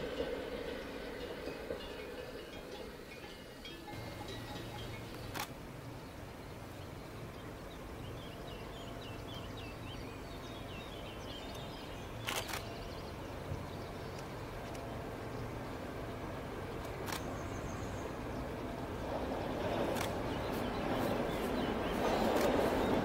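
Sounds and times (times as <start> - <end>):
sharp clicks: 5.1 - 5.6, 12.2 - 12.7.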